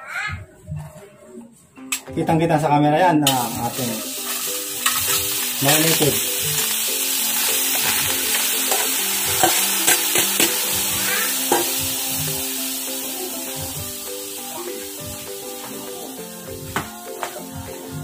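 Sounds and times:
meat sizzling in a wok: 3.3s - 18.0s
metal bowl clinking against wok: 4.2s - 6.8s, 7.4s - 10.6s, 11.4s - 11.8s.

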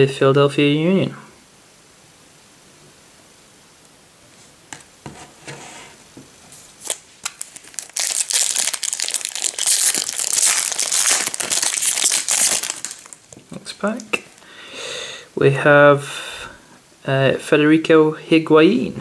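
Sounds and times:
foil wrapper crinkling: 6.7s - 14.4s.

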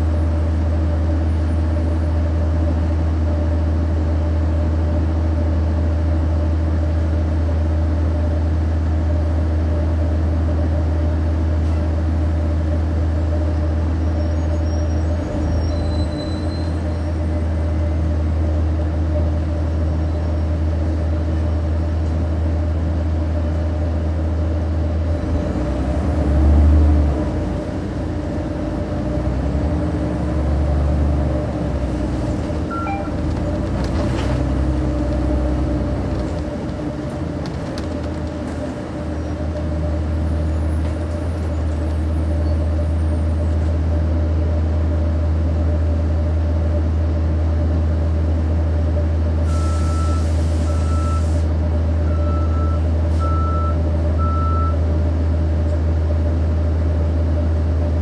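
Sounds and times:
bus engine drone: 0.0s - 58.0s
beeps: 32.7s - 33.2s, 52.1s - 54.8s.

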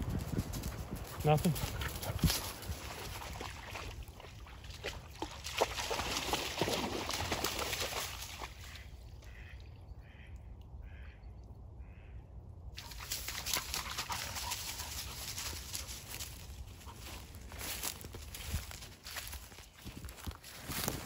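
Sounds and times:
duck quacking: 9.3s - 10.3s.

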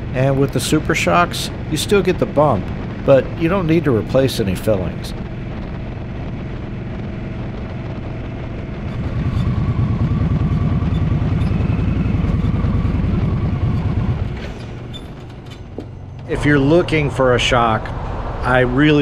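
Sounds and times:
motorcycle engine running: 0.0s - 19.0s.

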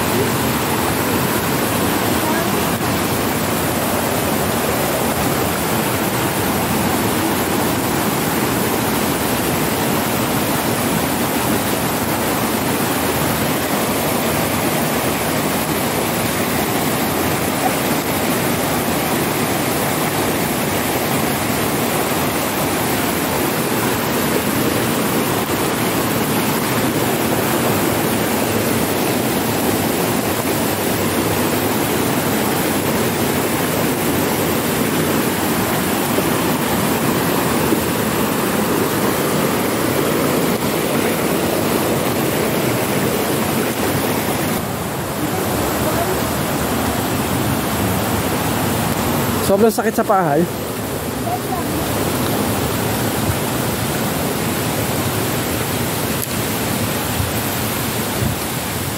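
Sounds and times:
mountain stream rushing: 0.0s - 58.9s.

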